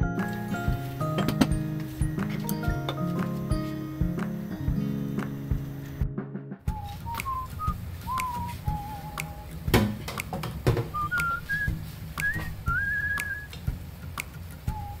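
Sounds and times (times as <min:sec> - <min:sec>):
chopsticks tapping a pan: 0:01.0 - 0:04.4
person whistling a slow tune: 0:06.7 - 0:09.7, 0:10.9 - 0:13.6, 0:14.6 - 0:15.0.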